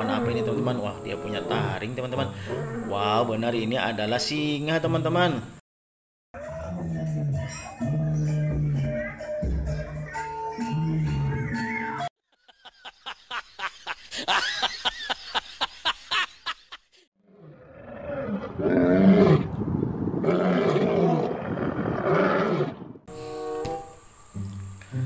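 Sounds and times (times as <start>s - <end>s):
lions roaring: 0.0s - 1.8s, 17.3s - 19.6s, 20.2s - 22.9s.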